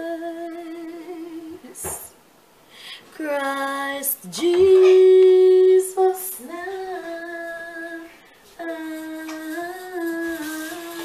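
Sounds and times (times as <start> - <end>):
woman singing worship song: 0.0 - 2.2, 2.8 - 11.0.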